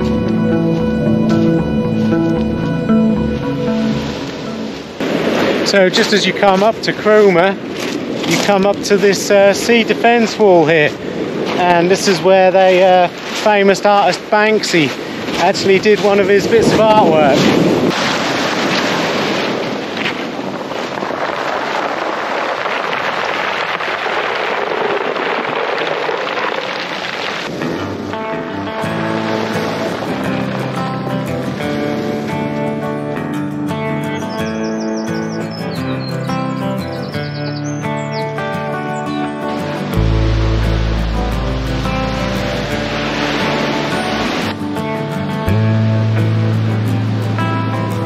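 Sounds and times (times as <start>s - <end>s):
soft ambient music: 0.0s - 5.0s, 37.6s - 48.0s
sea surf: 0.0s - 37.2s, 38.0s - 48.0s
waves breaking on beach: 3.6s - 33.2s, 39.5s - 48.0s.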